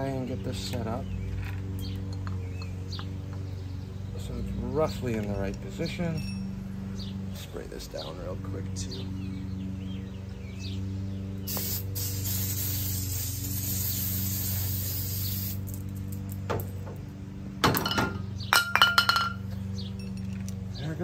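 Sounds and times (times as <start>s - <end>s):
sharp metallic clinks: 5.5s - 6.7s, 17.7s - 20.7s
aerosol can spraying hiss: 11.5s - 15.8s.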